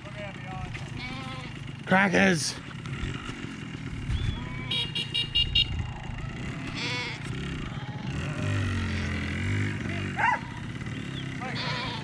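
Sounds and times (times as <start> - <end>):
motorbike engine running: 0.0 - 12.0
sheep bleating: 0.8 - 1.7, 4.3 - 5.0, 6.4 - 9.5, 11.4 - 12.0.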